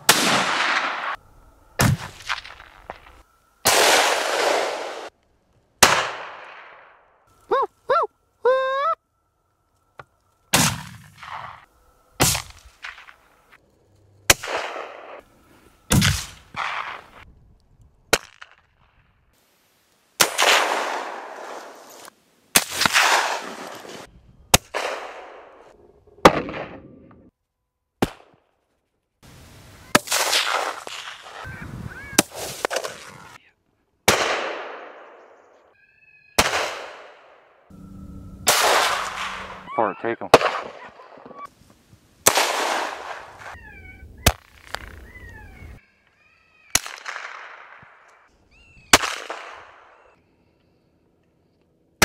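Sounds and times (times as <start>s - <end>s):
rifle shots with rolling echo: 0.0s - 1.2s, 3.6s - 5.1s, 5.8s - 7.2s, 10.5s - 13.2s, 14.3s - 15.3s, 15.9s - 17.2s, 20.2s - 21.8s, 22.6s - 23.9s, 24.5s - 27.1s, 34.0s - 35.7s, 36.4s - 37.8s, 38.4s - 39.7s, 40.3s - 41.4s, 42.2s - 43.6s, 46.7s - 48.3s, 48.9s - 50.2s.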